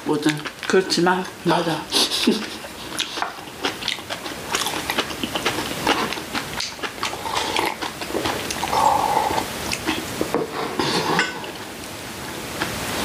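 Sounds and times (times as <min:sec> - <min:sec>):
chewing: 0:02.0 - 0:10.1.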